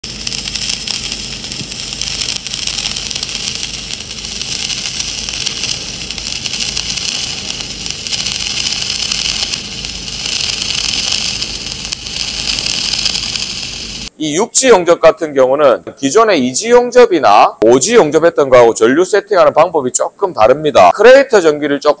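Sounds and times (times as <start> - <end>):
welding arc crackling hiss: 0.0 - 14.2.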